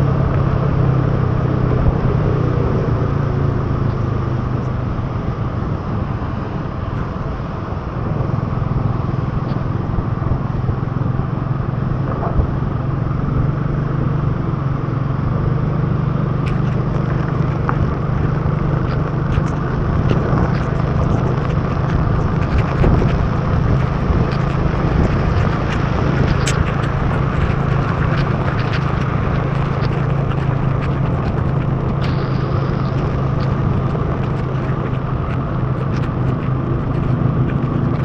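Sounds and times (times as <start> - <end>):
motorbike engine humming: 0.0 - 38.0
wind rush: 0.0 - 38.0
tyres hissing on wet road: 15.9 - 38.0
rain ticking on camera: 16.0 - 38.0.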